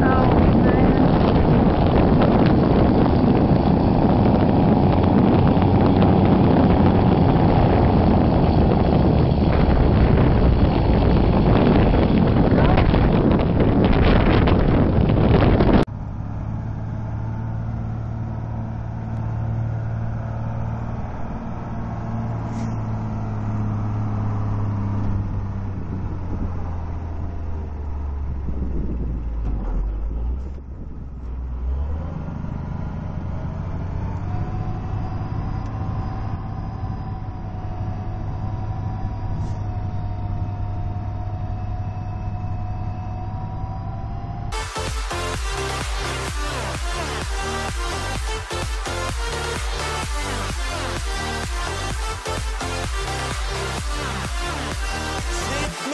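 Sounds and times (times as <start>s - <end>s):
snow blower engines running: 0.0s - 13.0s, 44.5s - 55.9s
faint rising whine: 0.0s - 55.9s
loud rushing noise: 44.5s - 55.9s.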